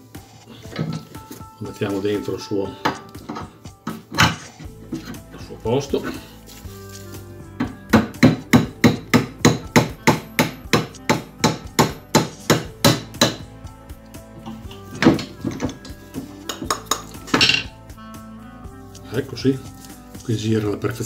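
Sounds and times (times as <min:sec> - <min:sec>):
hammer tapping: 0:07.6 - 0:13.5, 0:14.9 - 0:17.7.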